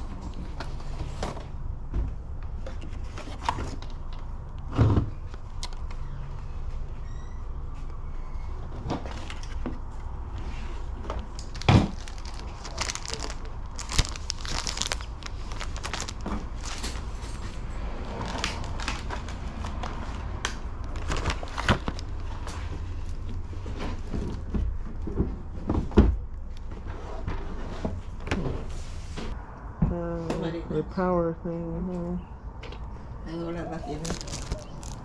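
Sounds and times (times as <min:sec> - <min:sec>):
plastic sleeves crinkling: 0:11.1 - 0:17.5, 0:18.1 - 0:20.2, 0:20.8 - 0:23.4, 0:33.8 - 0:35.0.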